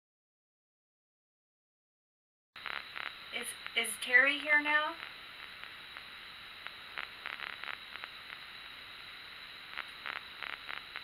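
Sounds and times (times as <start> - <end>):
steady hiss: 2.6 - 11.0.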